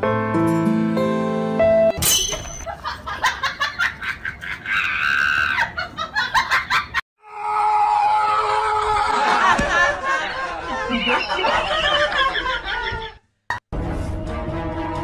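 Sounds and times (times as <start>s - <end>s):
soft music: 0.0s - 1.9s
person laughing: 2.7s - 7.0s, 8.9s - 13.2s.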